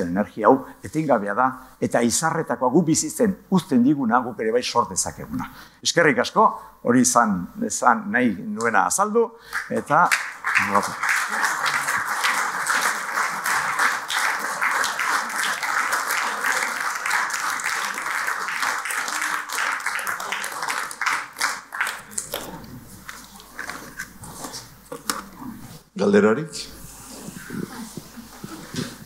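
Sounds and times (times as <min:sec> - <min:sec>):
audience applauding: 0:09.6 - 0:23.8.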